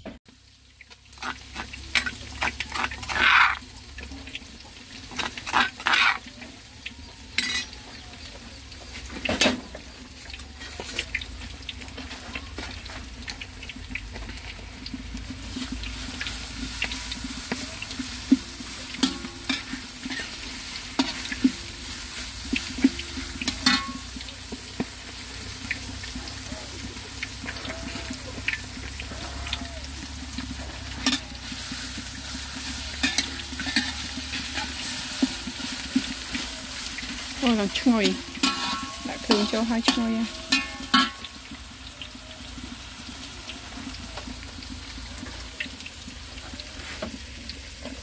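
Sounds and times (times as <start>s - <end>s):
food sizzling in a pan: 0.3s - 48.0s
utensil scraping and knocking pan: 1.2s - 3.6s, 32.6s - 37.2s, 38.1s - 41.3s.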